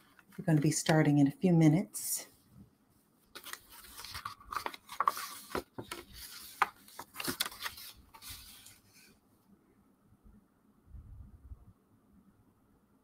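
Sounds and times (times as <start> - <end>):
rubbing and rustling handling noise: 0.0 - 1.4, 2.2 - 9.5.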